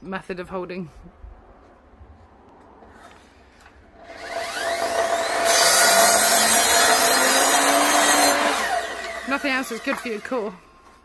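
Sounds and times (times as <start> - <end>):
saw blade cutting timber: 4.0 - 10.6
saw motor whine: 4.0 - 10.7.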